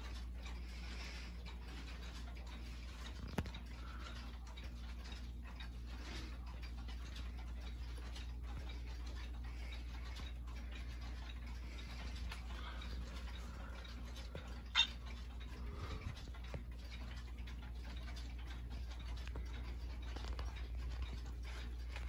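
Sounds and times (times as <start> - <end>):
low steady hum: 0.0 - 22.0
pendulum clocks ticking: 0.0 - 22.0.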